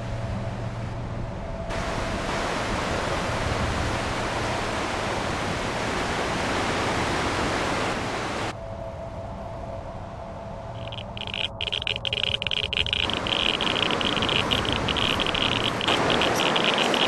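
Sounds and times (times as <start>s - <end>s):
water rushing over rocks: 10.8s - 17.0s.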